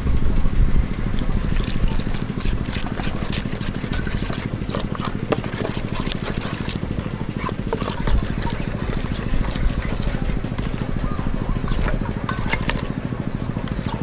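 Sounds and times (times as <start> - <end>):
low motor drone: 0.0 - 14.0
metal spoon scraping metal bowl: 1.4 - 10.9, 11.5 - 13.0.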